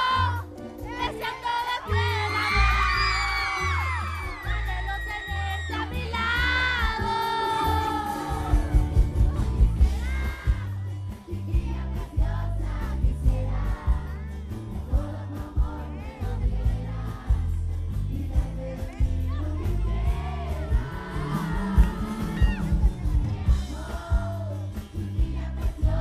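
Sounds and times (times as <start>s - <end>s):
pop backing track with bass and drums: 0.0s - 26.0s
man singing into microphone: 4.3s - 14.2s, 14.8s - 23.1s, 23.7s - 26.0s.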